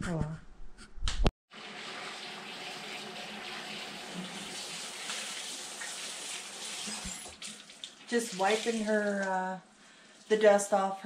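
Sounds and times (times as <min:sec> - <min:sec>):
faucet running into sink: 0:01.5 - 0:09.3.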